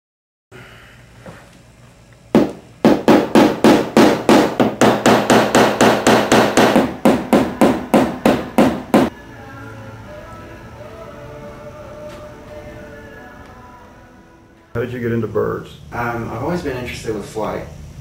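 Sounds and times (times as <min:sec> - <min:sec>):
hammer striking wooden frame: 0:02.4 - 0:09.1.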